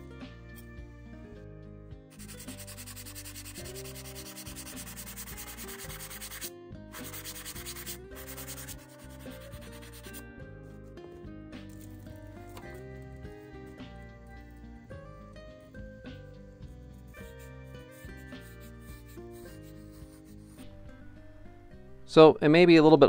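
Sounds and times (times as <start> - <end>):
background music: 0.0 - 23.0
sanding block rubbing wood: 2.2 - 10.2, 17.0 - 20.6.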